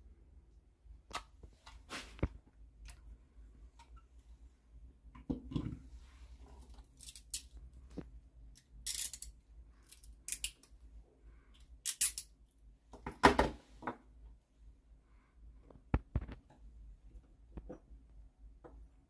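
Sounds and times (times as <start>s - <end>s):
metallic clicks and clinks: 6.9s - 7.6s, 8.6s - 10.7s, 11.6s - 12.4s.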